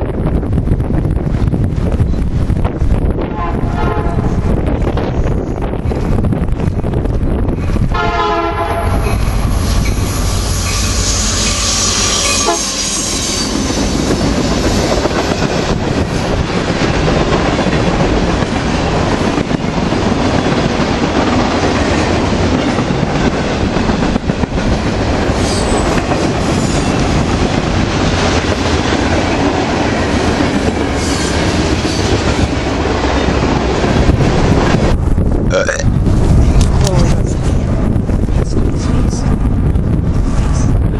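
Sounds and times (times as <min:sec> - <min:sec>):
freight train rumbling: 0:00.0 - 0:40.9
locomotive horn: 0:03.3 - 0:04.4, 0:07.9 - 0:09.2, 0:11.0 - 0:13.4.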